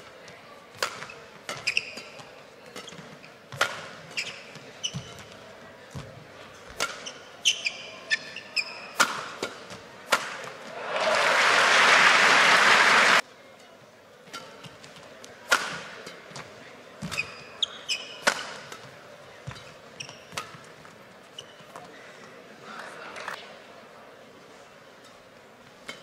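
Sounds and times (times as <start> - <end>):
court shoes squeaking: 0.0 - 10.7, 14.3 - 22.4
rackets striking shuttlecock: 8.9 - 10.6, 15.5 - 16.4, 18.1 - 19.7
loud applause: 10.7 - 13.2.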